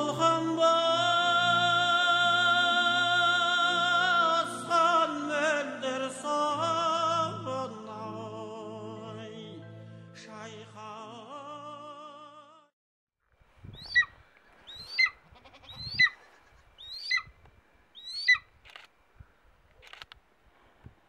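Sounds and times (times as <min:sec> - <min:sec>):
music with singing voice: 0:00.0 - 0:12.7
eagle calling: 0:13.6 - 0:18.8.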